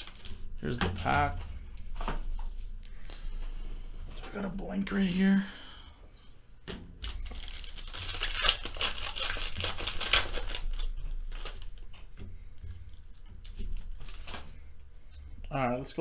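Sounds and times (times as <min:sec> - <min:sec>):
foil wrapper tearing and crinkling: 0:00.0 - 0:01.4, 0:07.0 - 0:11.9, 0:13.8 - 0:14.6.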